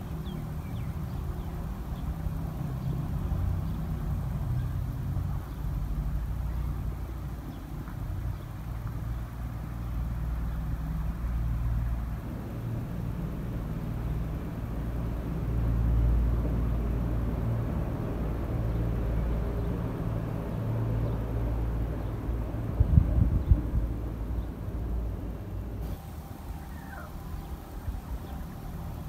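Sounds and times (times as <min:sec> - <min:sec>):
low motor rumble and hum: 0:00.0 - 0:29.0.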